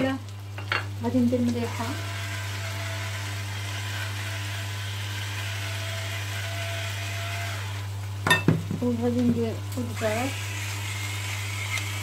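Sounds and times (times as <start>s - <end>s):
seafood sizzling in a pan: 0.0s - 12.0s
electric grinder motor running: 1.4s - 7.9s, 9.8s - 12.0s.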